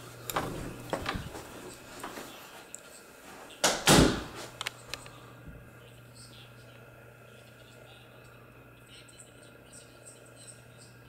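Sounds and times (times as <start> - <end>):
door bumping: 0.3 - 1.5, 3.6 - 4.4.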